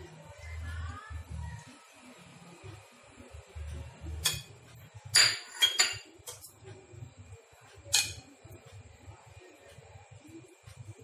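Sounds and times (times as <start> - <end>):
dishware clinking: 5.1 - 6.5, 7.9 - 8.3.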